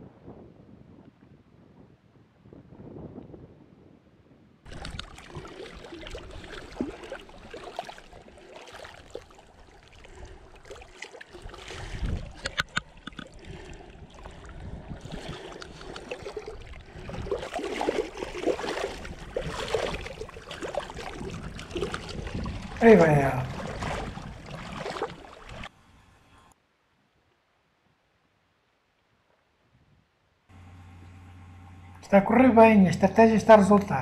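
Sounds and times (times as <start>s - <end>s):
water splashing over rocks: 4.7s - 25.7s
sharp clicks: 12.4s - 13.3s.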